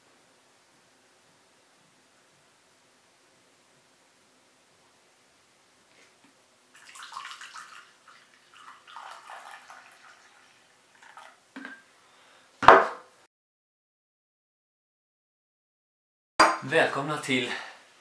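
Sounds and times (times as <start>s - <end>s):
coffee pouring into a mug: 6.7s - 11.4s.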